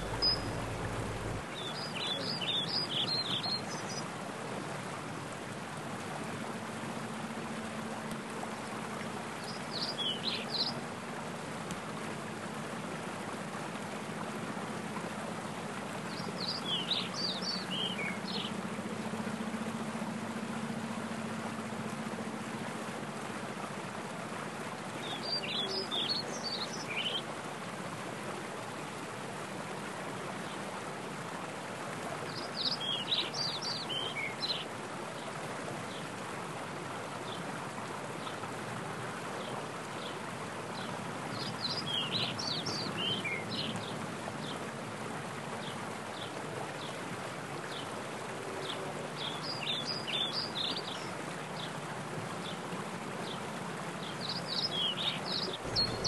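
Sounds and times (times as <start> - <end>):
songbird chirping: 0.0 - 4.1, 9.4 - 10.8, 16.0 - 22.4, 25.0 - 27.3, 48.6 - 51.7, 54.0 - 56.0
stream rushing over rocks: 0.0 - 56.0.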